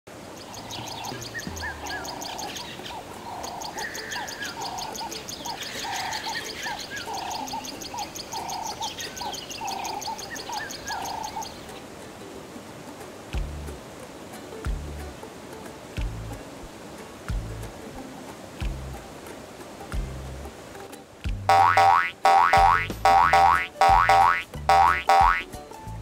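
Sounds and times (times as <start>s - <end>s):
bird calls: 0.3s - 11.9s, 21.5s - 25.5s
fast high ticking: 21.4s - 25.5s.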